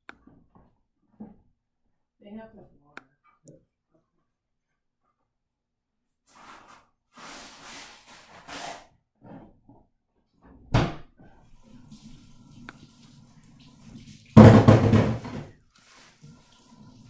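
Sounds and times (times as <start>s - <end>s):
loud thump: 14.4s - 15.4s.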